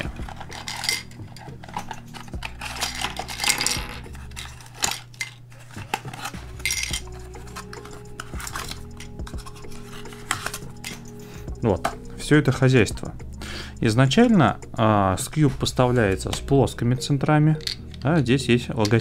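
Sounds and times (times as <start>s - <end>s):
cardboard box rustling: 0.0s - 11.0s
small plastic pieces clattering: 0.0s - 11.1s.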